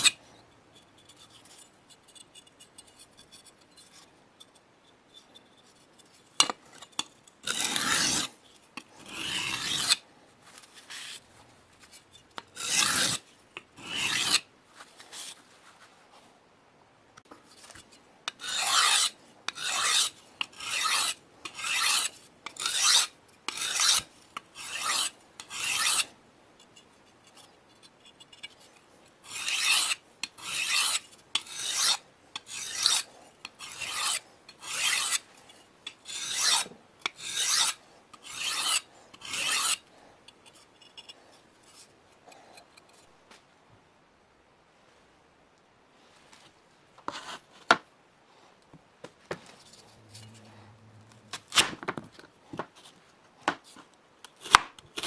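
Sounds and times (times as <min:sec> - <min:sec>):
abrasive scraping on a cleaver: 0:06.4 - 0:08.4, 0:09.0 - 0:10.0, 0:12.3 - 0:13.2, 0:13.8 - 0:14.4, 0:18.3 - 0:26.1, 0:26.8 - 0:39.8, 0:50.0 - 0:50.5.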